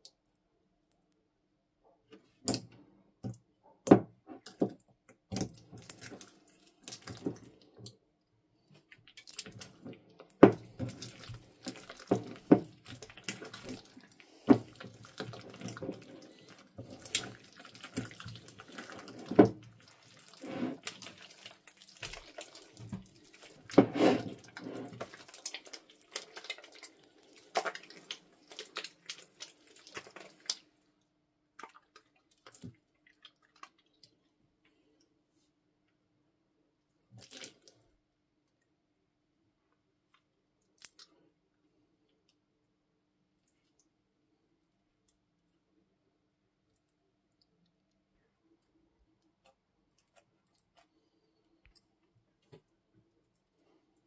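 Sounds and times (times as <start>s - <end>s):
slime squelching: 4.3s - 8.0s, 8.6s - 30.8s, 31.4s - 34.4s, 37.1s - 37.9s, 40.1s - 41.3s, 46.6s - 54.0s.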